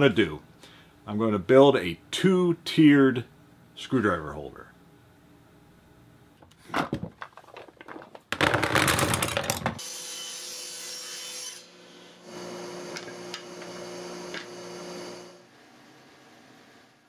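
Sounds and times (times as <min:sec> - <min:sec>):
screwdrivers knocking and clattering: 0:06.4 - 0:09.8
wood and metal scraping rattle: 0:06.6 - 0:09.8.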